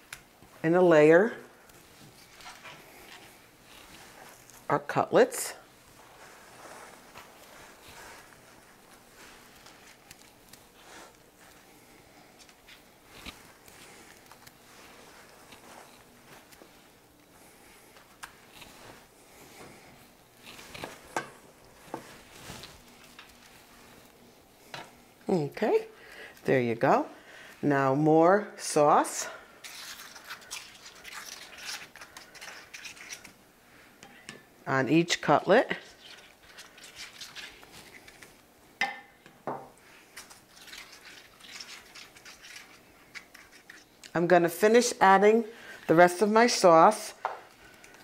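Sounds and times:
faint paper rustling: 0:05.8 - 0:24.7
sauce scraping and squishing: 0:29.6 - 0:33.4, 0:35.8 - 0:38.4, 0:40.0 - 0:44.1.

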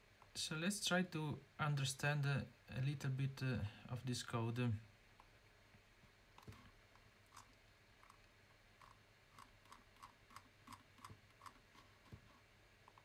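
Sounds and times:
mouse scroll wheel clicks: 0:08.8 - 0:13.0.

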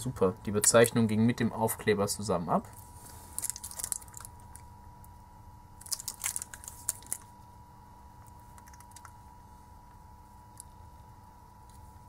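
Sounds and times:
faint high whine: 0:00.0 - 0:12.0
plastic crinkling in hands: 0:03.0 - 0:04.6, 0:05.8 - 0:07.3.

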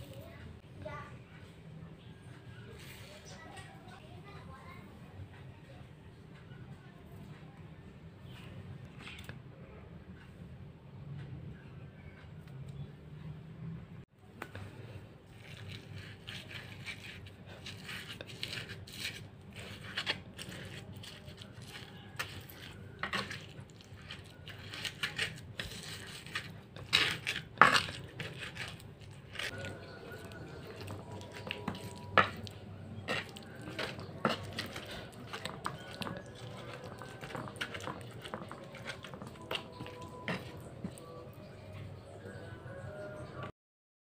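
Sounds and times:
pestle grinding in mortar: 0:15.3 - 0:41.4.

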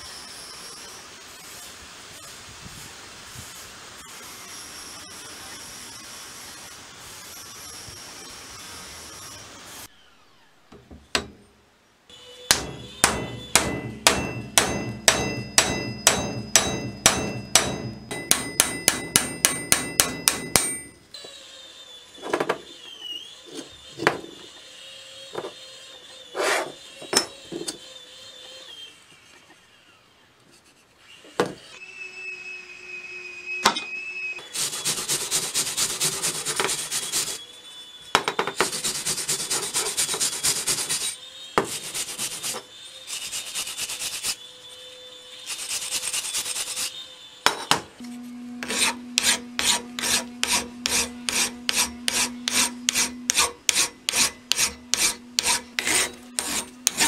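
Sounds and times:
hammer striking metal: 0:11.1 - 0:11.5, 0:12.5 - 0:21.1, 0:48.6 - 0:57.0
rhythmic scraping on steel: 0:12.4 - 0:21.2, 0:48.0 - 0:57.0.

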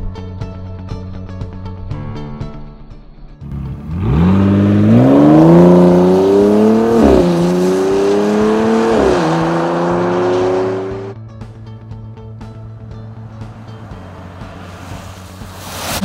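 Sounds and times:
car engine accelerating hard: 0:03.4 - 0:11.2, 0:13.0 - 0:16.0.

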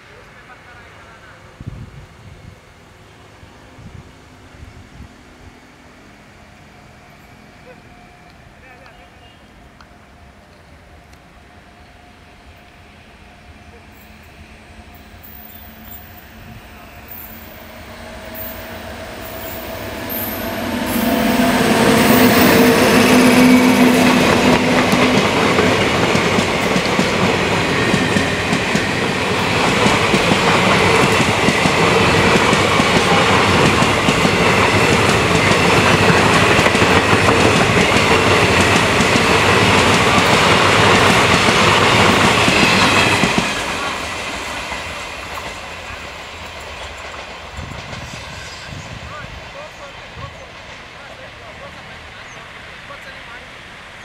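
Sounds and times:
electric locomotive hum: 0:00.0 - 0:54.0
train wheels clattering over rail joints: 0:24.2 - 0:48.2.

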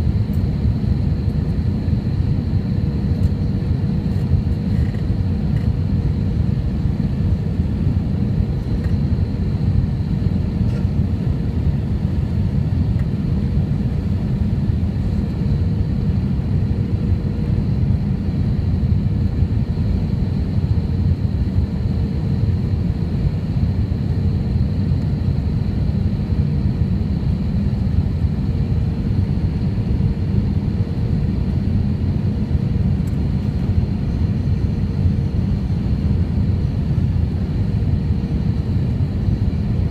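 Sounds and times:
aircraft engine and airflow rumble: 0:00.0 - 0:39.9
faint steady hum: 0:00.0 - 0:39.9.

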